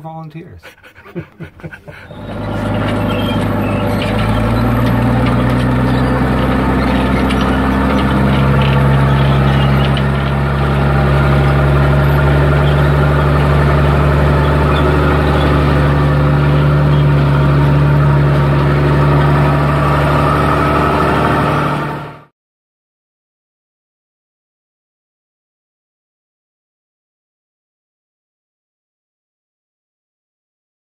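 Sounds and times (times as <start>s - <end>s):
tractor engine running: 0.0s - 22.3s.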